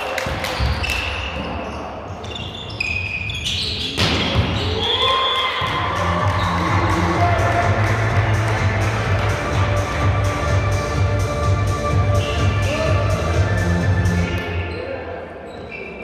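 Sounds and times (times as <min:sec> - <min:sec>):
shoe squeaks on court floor: 0:00.6 - 0:05.1, 0:14.3 - 0:16.0
arena music with bass beat: 0:05.7 - 0:14.6.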